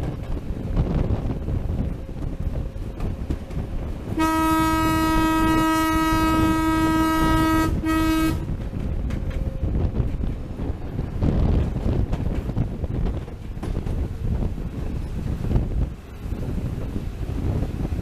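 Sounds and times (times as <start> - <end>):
moving train rumble: 0.0 - 18.0
wind noise: 0.0 - 18.0
locomotive horn blasts: 4.1 - 8.6.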